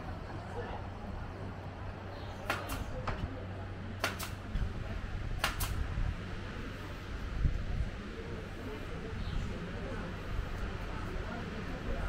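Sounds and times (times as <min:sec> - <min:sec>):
faint voices: 0:00.0 - 0:12.0
sharp double clicks: 0:04.0 - 0:04.4, 0:05.4 - 0:05.8.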